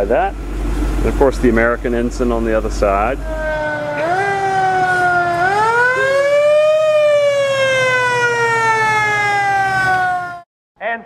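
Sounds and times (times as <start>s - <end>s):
siren wailing: 2.8s - 10.5s.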